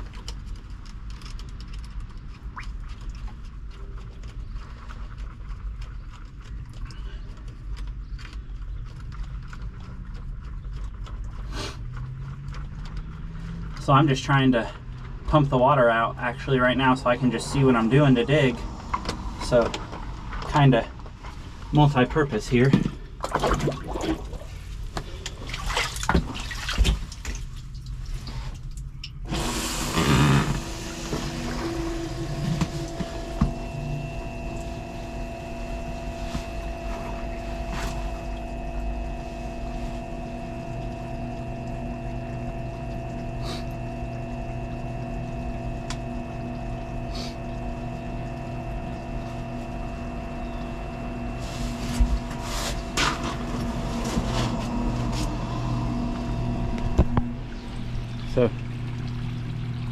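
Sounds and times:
pump motor humming: 0:10.9 - 0:59.9
water rushing through pump: 0:11.0 - 0:59.9
pump knocking and splashing: 0:18.8 - 0:59.9.

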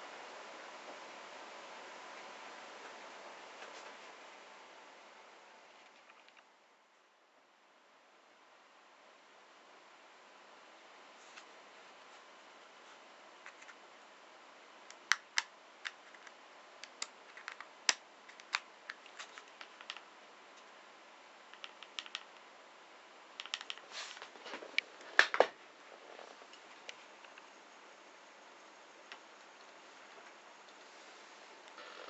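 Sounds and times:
plastic toy clicks and taps: 0:21.6 - 0:22.4.

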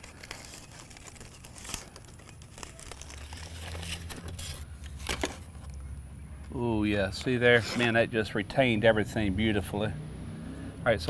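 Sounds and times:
aluminium foil crinkling: 0:00.0 - 0:05.8.

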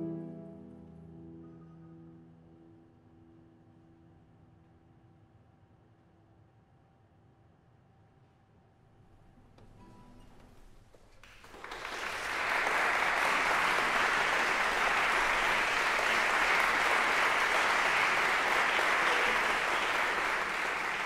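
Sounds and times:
audience applauding: 0:11.0 - 0:21.0.

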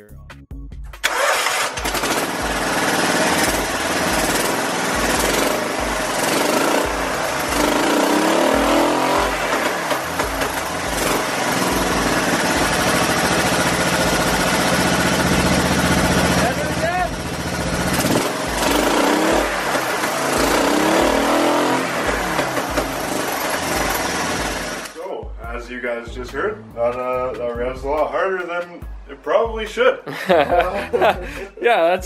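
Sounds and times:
small engine starting and revving: 0:01.0 - 0:25.0.

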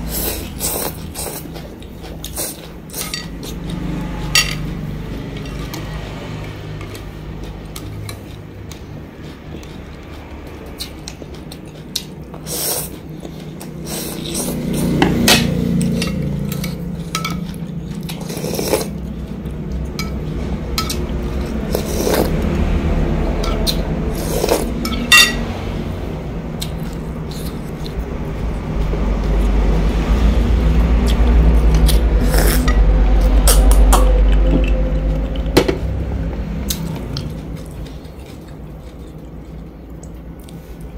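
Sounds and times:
spoon and chopsticks clinking bowl: 0:03.0 - 0:03.6, 0:15.3 - 0:17.6, 0:24.8 - 0:25.4.

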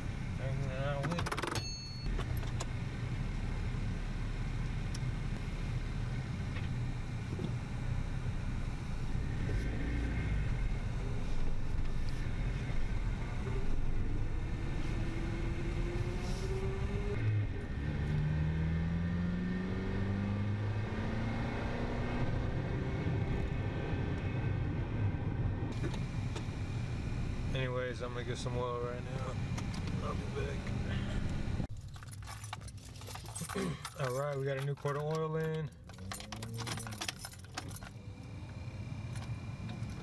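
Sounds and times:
road rumble: 0:00.0 - 0:40.0
car engine accelerating: 0:02.1 - 0:31.7.

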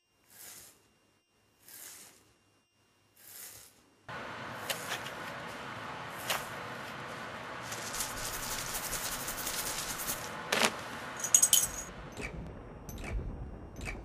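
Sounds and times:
dense shaking rattle: 0:07.6 - 0:10.4
sharp jingling strikes: 0:11.1 - 0:12.3.

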